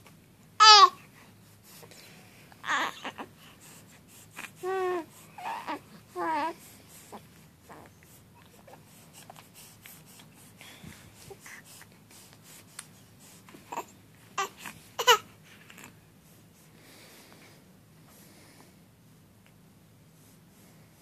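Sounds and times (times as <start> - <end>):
baby cooing: 0.6 - 1.0, 2.6 - 3.3, 4.6 - 6.6, 13.7 - 15.2.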